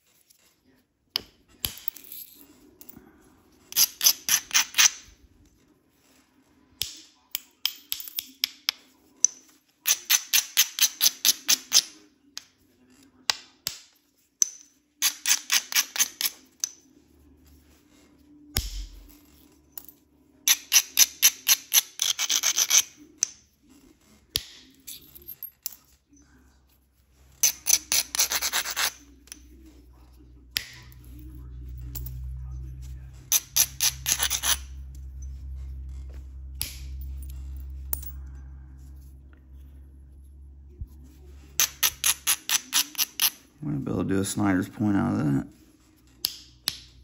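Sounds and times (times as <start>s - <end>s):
stone grinding stone edge: 27.4s - 29.4s, 33.3s - 34.9s, 41.6s - 43.4s.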